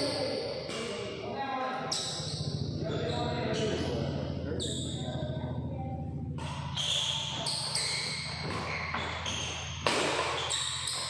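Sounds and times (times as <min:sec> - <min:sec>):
low hum: 0:00.0 - 0:11.0
rackets hitting shuttlecock: 0:06.4 - 0:11.0
shoes squeaking on floor: 0:06.4 - 0:11.0.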